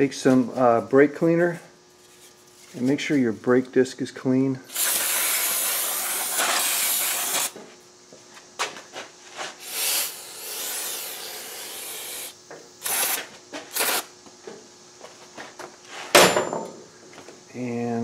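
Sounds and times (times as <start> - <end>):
aerosol spray hissing: 4.7 - 7.6, 9.6 - 14.1.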